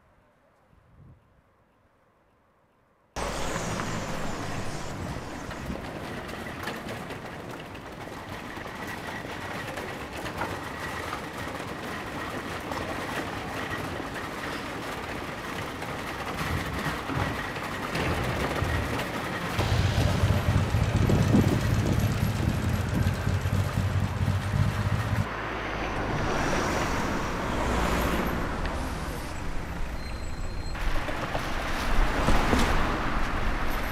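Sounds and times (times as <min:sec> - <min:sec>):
traffic hum: 0:03.2 - 0:33.9
low rumble: 0:19.6 - 0:30.8.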